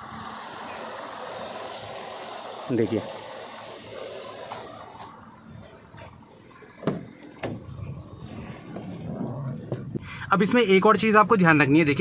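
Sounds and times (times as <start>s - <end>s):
faint outdoor background: 0.0s - 12.0s
car door clunks: 6.8s - 7.8s.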